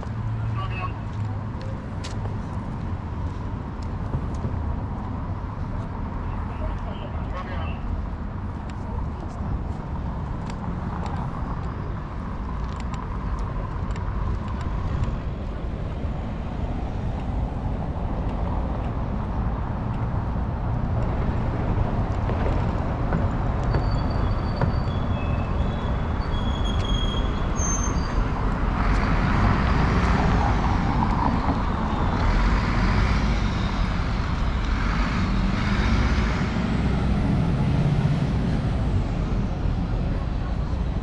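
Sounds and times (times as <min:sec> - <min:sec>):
bus passing: 0:00.0 - 0:41.0
street traffic rumble: 0:00.0 - 0:41.0.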